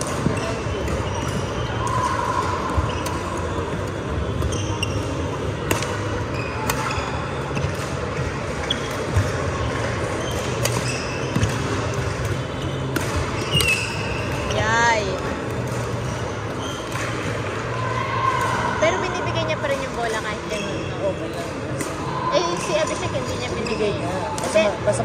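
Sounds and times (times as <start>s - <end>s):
murmur of spectators: 0.0s - 25.0s
shoes squeaking on floor: 0.2s - 2.1s, 2.7s - 5.5s, 6.2s - 7.7s, 8.6s - 9.3s, 10.1s - 11.7s, 12.3s - 15.0s, 16.1s - 17.2s
racket striking shuttlecock: 10.3s - 14.4s.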